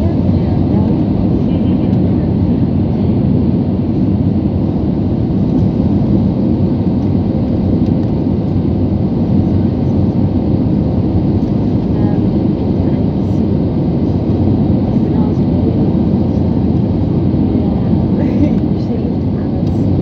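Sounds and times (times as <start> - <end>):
jet engine and airflow noise: 0.0 - 20.0.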